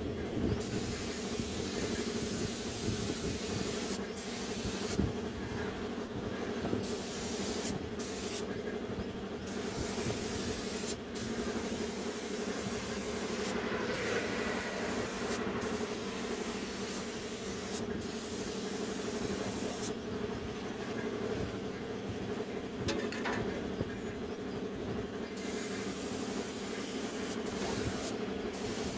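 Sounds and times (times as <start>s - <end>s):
low machine hum: 0.0s - 28.9s
spray gun hissing: 0.6s - 5.1s, 6.8s - 8.5s, 9.5s - 19.9s, 25.4s - 28.9s.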